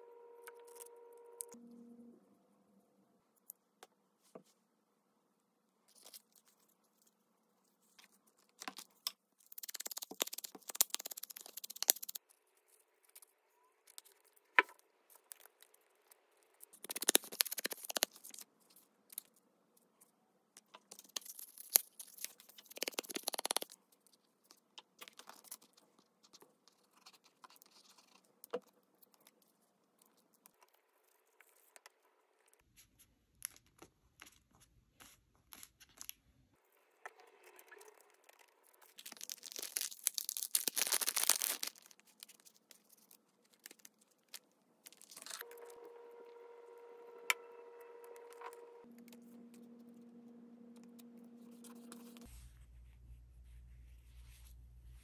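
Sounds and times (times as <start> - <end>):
paper scratching: 50.9 - 52.4.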